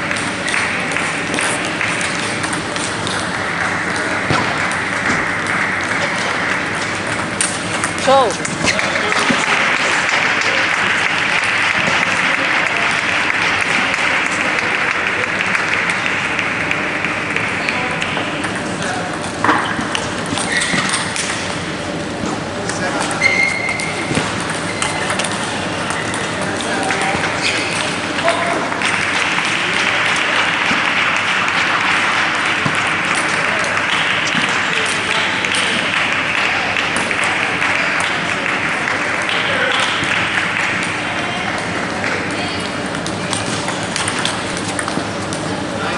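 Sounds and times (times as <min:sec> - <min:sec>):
crowd applauding: 0:00.0 - 0:07.0, 0:08.0 - 0:18.4, 0:28.2 - 0:42.6.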